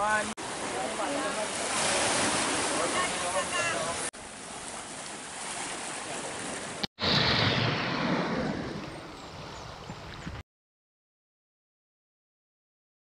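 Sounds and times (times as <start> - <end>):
waves washing on shore: 0.0 - 6.9
wave breaking on beach: 0.2 - 4.1.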